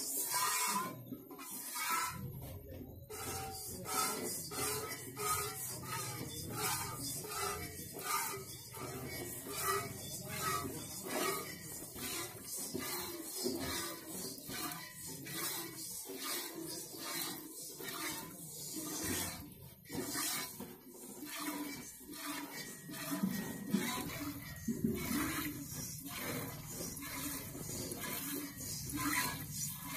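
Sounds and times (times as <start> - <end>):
milk squirting into metal pot: 23.7 - 29.9.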